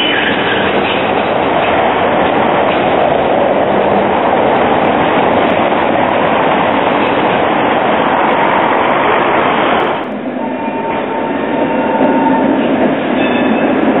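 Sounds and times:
tram rolling over rails: 0.0 - 14.0.

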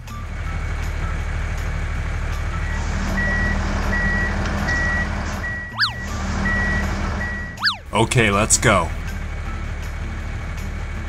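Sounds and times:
tractor engine rumble: 0.0 - 11.0
reversing alarm beeping: 2.6 - 8.0
cartoon swoop: 5.7 - 6.1, 7.6 - 8.0.

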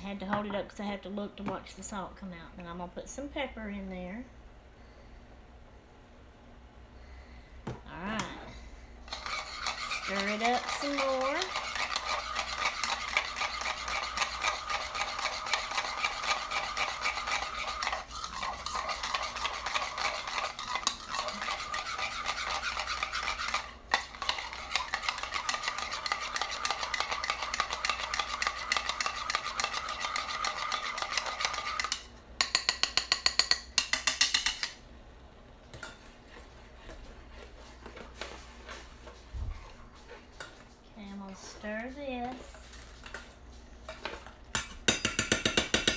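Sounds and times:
utensil beating egg in bowl: 9.0 - 34.8, 43.9 - 45.9.

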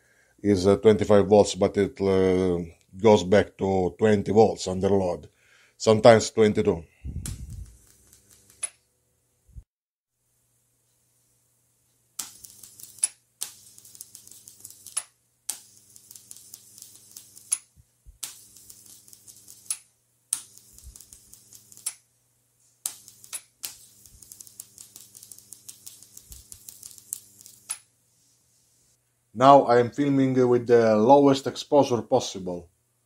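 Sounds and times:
electric arc crackling: 7.1 - 8.8, 12.2 - 22.0, 22.8 - 27.9.

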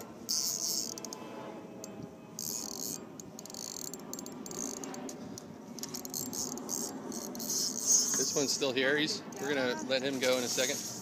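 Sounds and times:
fishing reel drag clicking: 0.0 - 1.2, 2.4 - 5.2, 5.8 - 8.5.

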